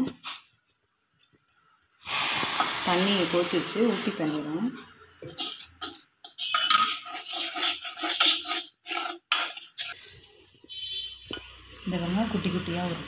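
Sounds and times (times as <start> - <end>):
spoon scraping a steel pan: 4.3 - 10.3.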